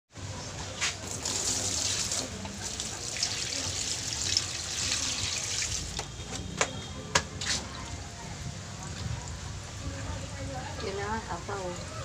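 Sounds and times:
water pouring into a metal pot: 1.1s - 6.0s.

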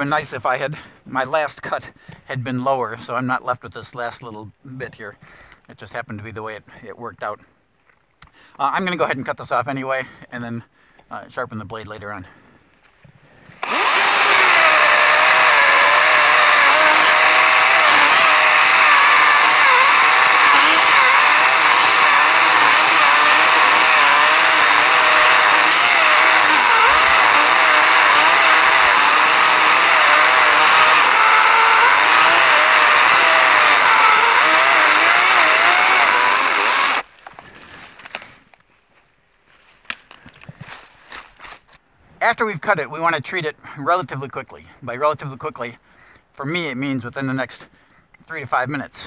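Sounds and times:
electric chainsaw cutting wood: 13.6s - 37.1s.

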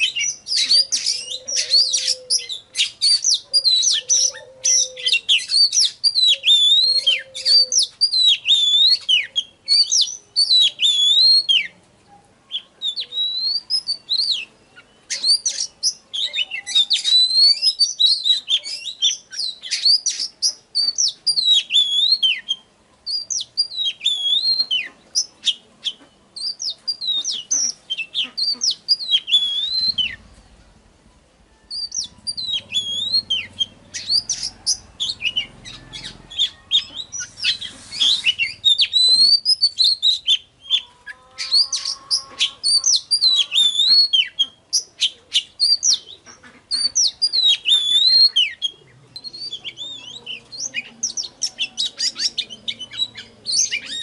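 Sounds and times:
bird singing whistles and chirps: 0.0s - 11.7s, 12.5s - 25.6s, 26.4s - 30.4s, 31.6s - 54.0s.

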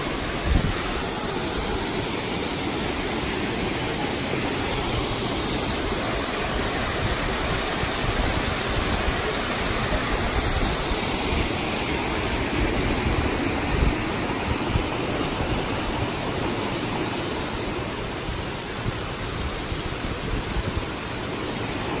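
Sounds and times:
stream rushing over boulders: 0.0s - 22.0s.

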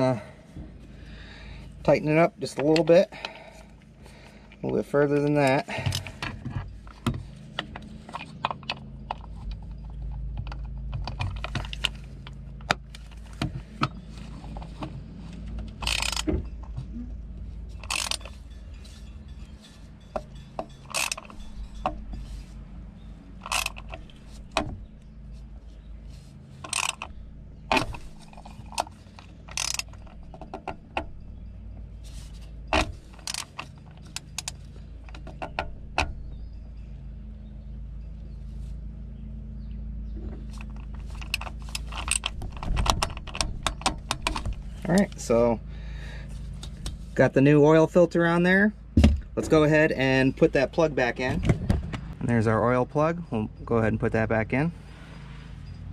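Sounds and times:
steady low hum: 0.0s - 55.9s
ratchet wrench clicking: 15.8s - 16.3s, 17.8s - 18.6s, 20.1s - 21.8s, 23.4s - 24.1s, 26.7s - 27.2s, 27.8s - 30.3s.

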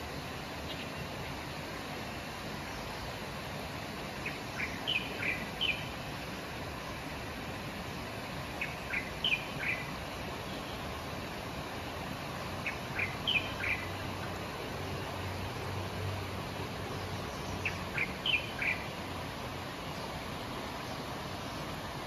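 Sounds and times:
fast-flowing river rushing: 0.1s - 22.0s
bird chirping calls: 4.2s - 5.9s, 8.6s - 9.9s, 12.6s - 14.3s, 17.3s - 18.9s.

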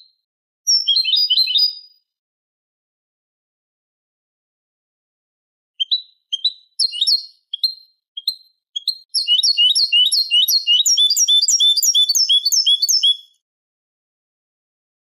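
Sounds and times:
high twittering bird song: 0.7s - 2.0s, 5.8s - 13.4s.

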